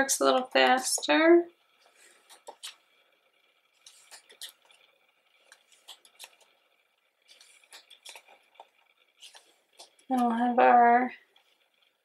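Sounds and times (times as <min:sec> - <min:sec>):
paper pages turning: 0:01.9 - 0:02.8, 0:03.8 - 0:04.8, 0:05.4 - 0:06.5, 0:07.2 - 0:10.2.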